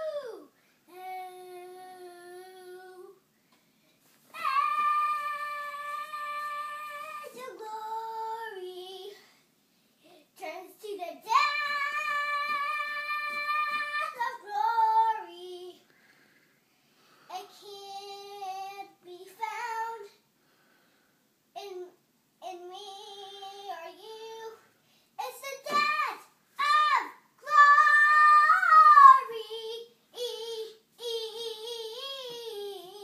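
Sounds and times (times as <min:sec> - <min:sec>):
child singing long notes: 0:00.0 - 0:03.2, 0:04.3 - 0:09.1, 0:11.3 - 0:15.8, 0:25.6 - 0:33.0.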